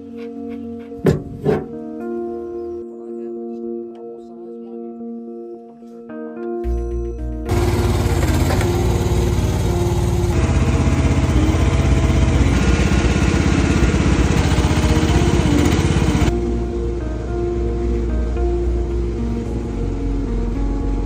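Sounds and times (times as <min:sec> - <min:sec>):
excavator engine running: 0:07.4 - 0:16.6.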